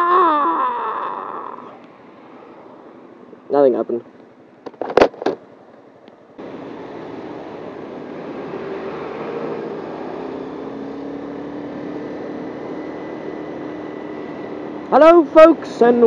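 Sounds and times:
wind and road noise: 0:01.0 - 0:16.0
motorcycle engine: 0:06.4 - 0:15.0.

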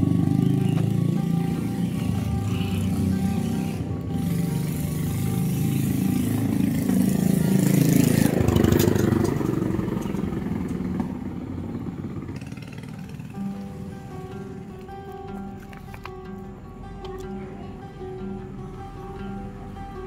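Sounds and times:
motorcycle passing: 0:00.0 - 0:20.0.

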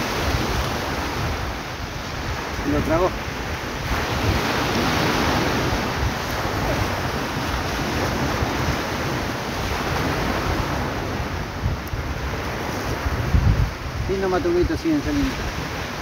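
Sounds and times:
surf washing on beach: 0:00.0 - 0:16.0
wind buffeting microphone: 0:00.0 - 0:16.0.

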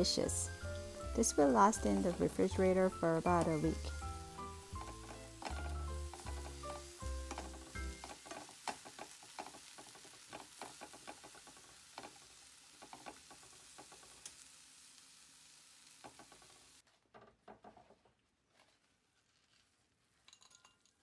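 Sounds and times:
faint sizzle: 0:00.0 - 0:16.9
wooden spatula scraping a frying pan: 0:00.5 - 0:14.3.

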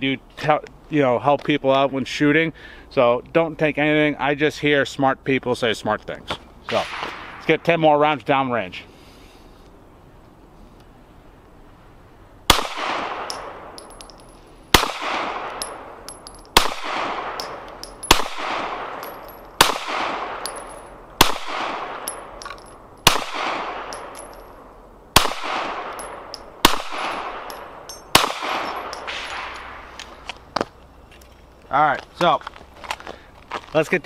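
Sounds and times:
pistol shots echoing: 0:12.5 - 0:24.4, 0:25.2 - 0:29.9.

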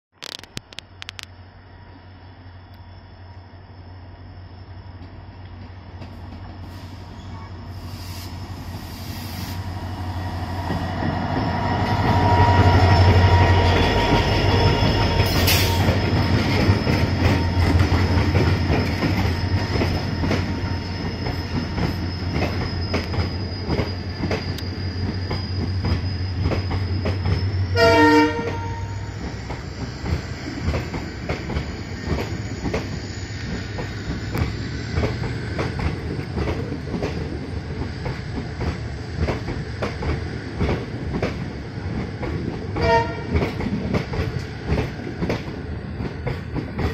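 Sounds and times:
train passing at speed: 0:01.3 - 0:46.9
train horn blast: 0:27.7 - 0:29.1, 0:42.8 - 0:43.4.

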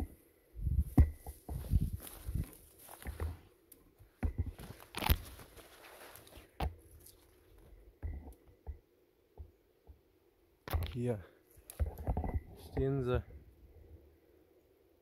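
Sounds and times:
footsteps crunching on forest floor: 0:00.8 - 0:03.5, 0:04.5 - 0:07.7
twigs cracking: 0:04.5 - 0:07.7.

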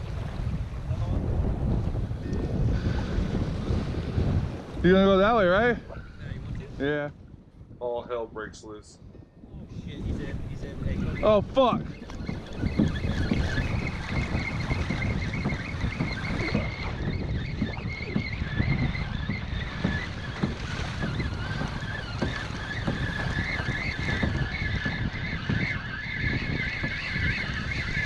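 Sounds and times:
water slapping kayak hull: 0:00.0 - 0:08.2, 0:09.0 - 0:28.0
wind buffeting microphone: 0:00.0 - 0:28.0
wavering high-pitched tone: 0:10.8 - 0:28.0.

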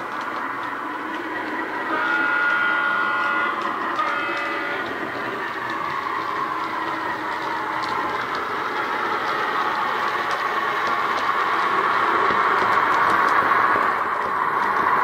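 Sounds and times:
locomotive horn: 0:01.8 - 0:05.5.

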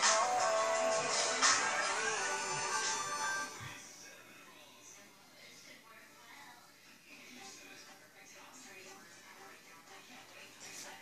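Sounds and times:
background music: 0:00.0 - 0:04.0.

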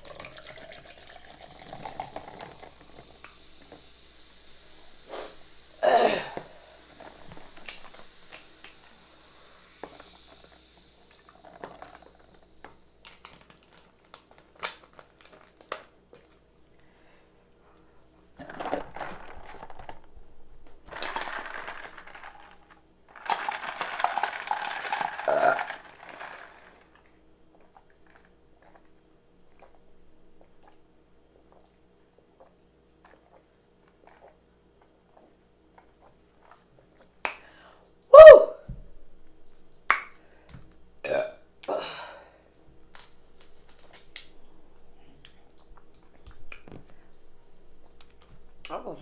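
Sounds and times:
noisy slurping: 0:06.6 - 0:15.6, 0:23.3 - 0:29.8, 0:31.4 - 0:37.2.

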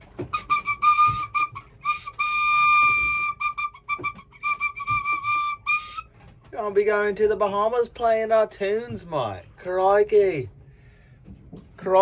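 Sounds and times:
whistle pipe toots: 0:00.0 - 0:06.2.

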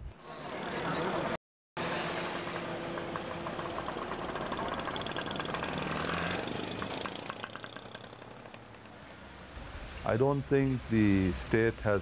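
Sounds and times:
car engine running: 0:02.1 - 0:09.0
fast regular ticking: 0:02.8 - 0:09.0.

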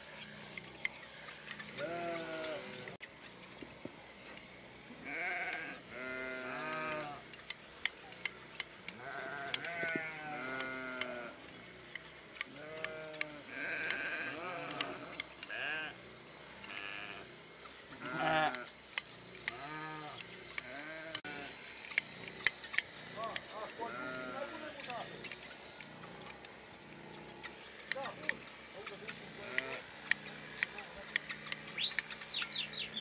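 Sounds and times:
shears snipping fleece: 0:00.0 - 0:33.0
sheep bleating: 0:01.7 - 0:02.6, 0:05.0 - 0:07.2, 0:08.9 - 0:11.4, 0:12.5 - 0:16.0, 0:16.7 - 0:17.3, 0:18.0 - 0:18.7, 0:19.5 - 0:21.5, 0:23.2 - 0:24.8, 0:29.3 - 0:29.9.

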